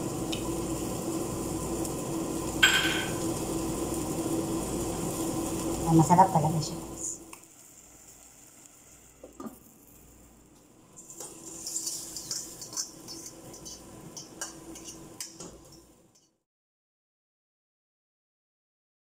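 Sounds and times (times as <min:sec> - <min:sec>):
food sizzling hiss: 0:00.0 - 0:16.4
metal clinks against pot: 0:02.6 - 0:03.2.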